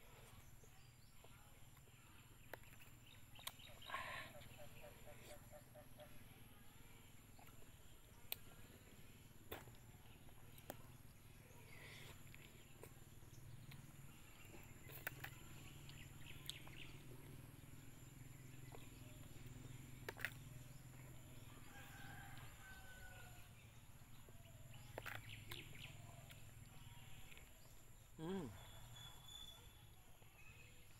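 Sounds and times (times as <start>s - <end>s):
faint bird chirps: 24.3s - 30.9s.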